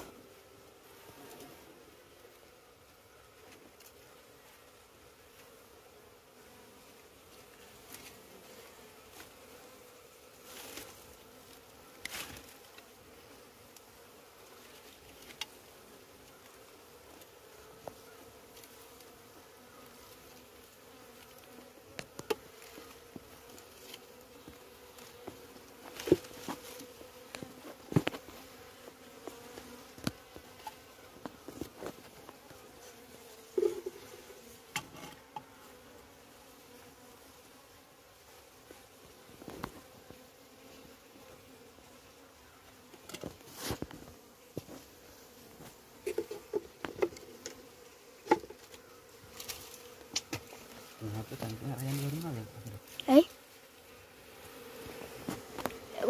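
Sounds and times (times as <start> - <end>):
honeybees buzzing: 0.0 - 56.0.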